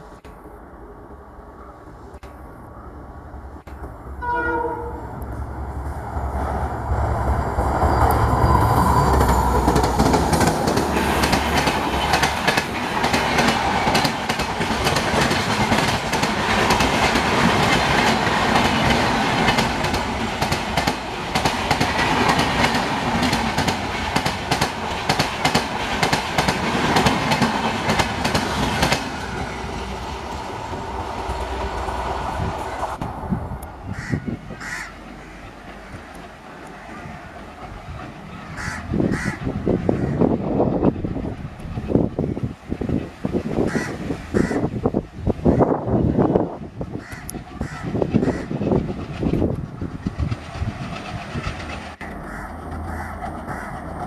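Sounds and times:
train horn: 0:04.2 - 0:05.2
train wheels clattering over rail joints: 0:09.0 - 0:29.5, 0:47.0 - 0:54.0
locomotive engine rumble: 0:26.7 - 0:54.0.

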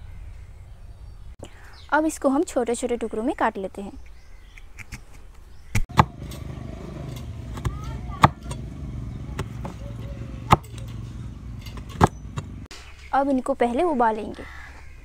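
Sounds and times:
cleaver chopping on wooden board: 0:05.8 - 0:11.1, 0:11.7 - 0:12.6
steady low hum: 0:05.9 - 0:12.7.

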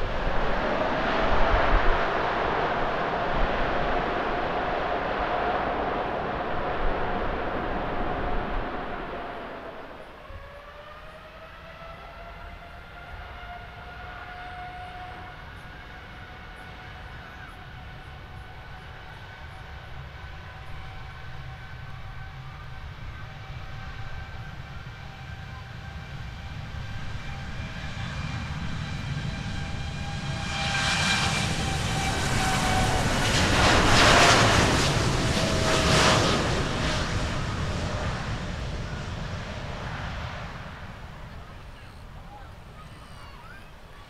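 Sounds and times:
low rumble: 0:00.0 - 0:10.6
jet engine whine: 0:00.0 - 0:44.0.

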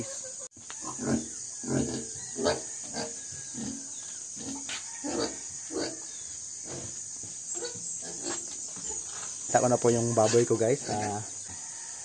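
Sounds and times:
pig grunting: 0:00.8 - 0:06.0.

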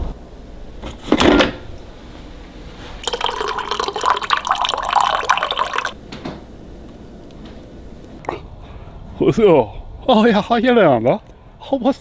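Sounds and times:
coffee pouring into a mug: 0:03.0 - 0:06.0.

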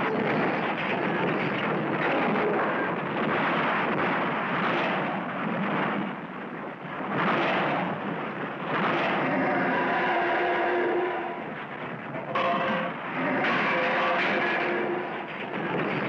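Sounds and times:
rumble of falling rock and blasts: 0:00.0 - 0:10.5, 0:11.3 - 0:16.0
pitched sound effect: 0:12.3 - 0:15.2.

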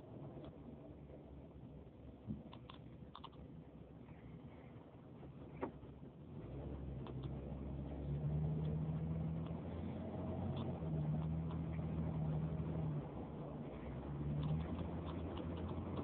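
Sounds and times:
car engine and road noise: 0:00.0 - 0:16.0
faint ticks: 0:14.3 - 0:16.0.

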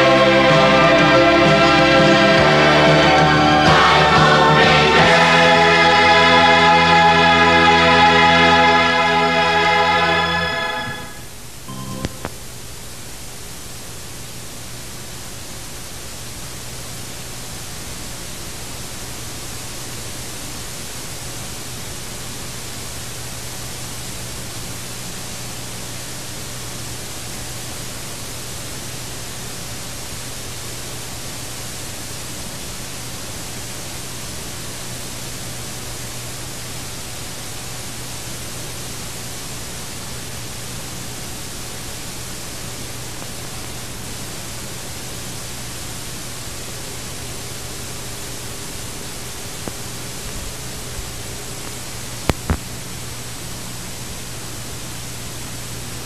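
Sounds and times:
tape hiss: 0:00.0 - 0:56.0
low hum: 0:10.4 - 0:12.6.

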